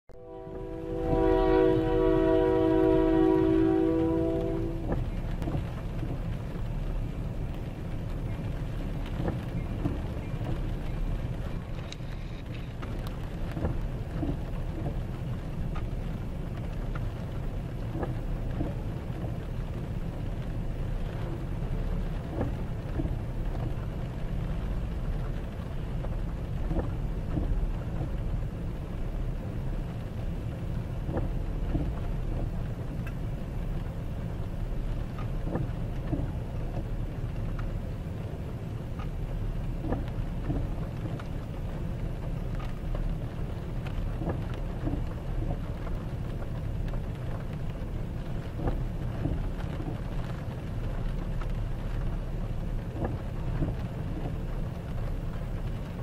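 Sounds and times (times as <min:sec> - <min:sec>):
rain ticking on vehicle: 0:00.1 - 0:56.0
train wheels rumbling on rail: 0:00.2 - 0:56.0.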